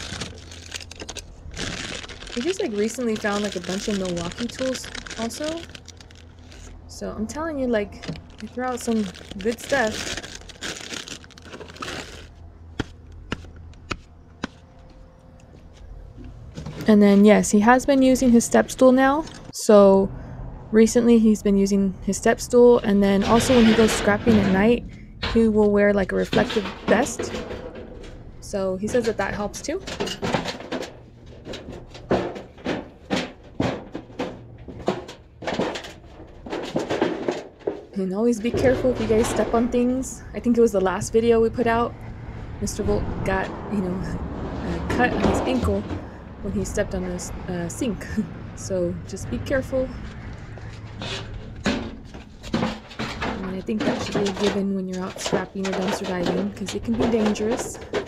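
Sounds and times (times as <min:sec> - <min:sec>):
cardboard and scrap rustling: 0:00.0 - 0:06.8, 0:07.9 - 0:15.0, 0:49.5 - 0:58.0
scrap metal clanking: 0:22.3 - 0:58.0.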